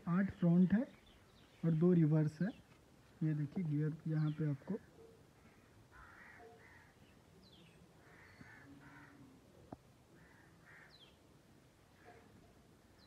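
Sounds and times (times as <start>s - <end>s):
faint crows cawing: 4.3s - 7.2s, 8.0s - 11.2s.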